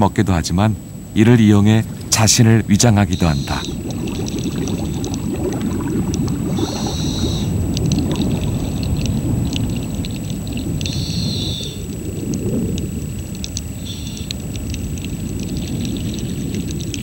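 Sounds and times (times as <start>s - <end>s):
low underwater rumble: 0.8s - 17.0s
faint clicks: 6.0s - 17.0s.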